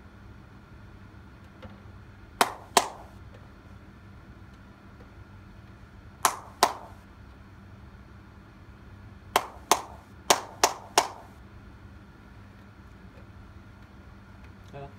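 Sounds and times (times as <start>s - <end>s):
faint steady hum: 0.0s - 14.9s
hand claps with echo: 2.4s - 3.2s, 6.2s - 7.0s, 9.4s - 11.4s.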